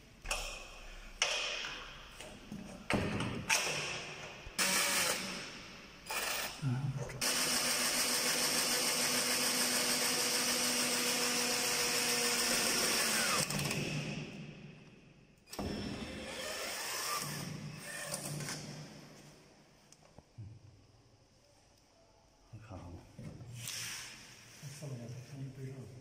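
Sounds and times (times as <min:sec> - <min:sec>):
cordless drill motor whine: 0:10.1 - 0:13.5.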